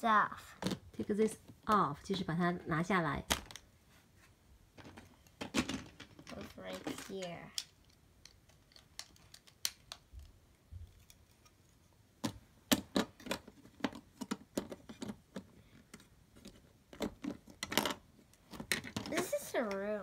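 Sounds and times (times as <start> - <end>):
plastic bricks clicking: 7.5 - 10.3.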